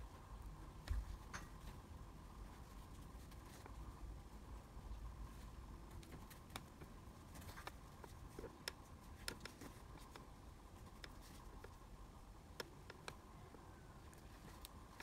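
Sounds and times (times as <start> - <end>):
small clicks and cloth rustling: 5.3 - 11.9, 12.5 - 15.0.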